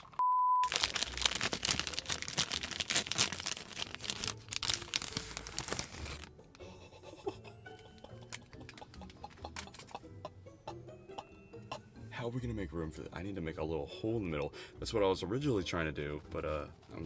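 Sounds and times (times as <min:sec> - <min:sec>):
ice cream wrapper crinkling: 0:00.0 - 0:06.4.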